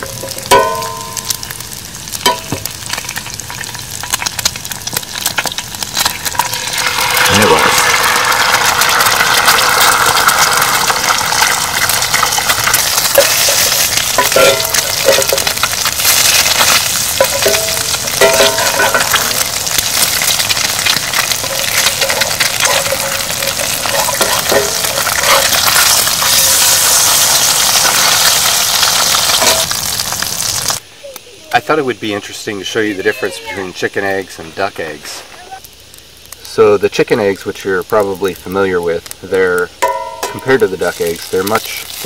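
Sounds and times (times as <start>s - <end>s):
eggs sizzling in a skillet: 0.0s - 42.0s
metal spatula scraping a pan: 11.8s - 27.0s.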